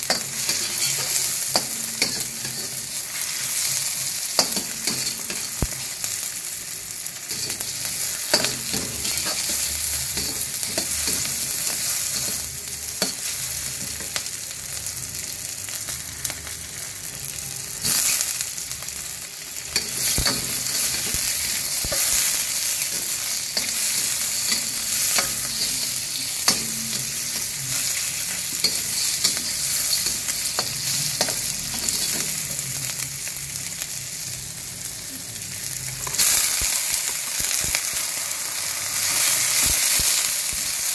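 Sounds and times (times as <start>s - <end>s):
metal spatula scraping wok: 0.0s - 5.9s, 7.3s - 14.2s, 19.7s - 32.8s
food sizzling in oil: 0.0s - 40.9s.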